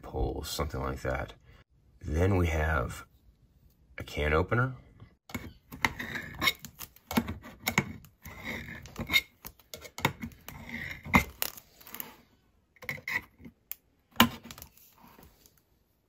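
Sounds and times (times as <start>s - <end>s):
can opener clicking and scraping tin: 12.8s - 13.6s.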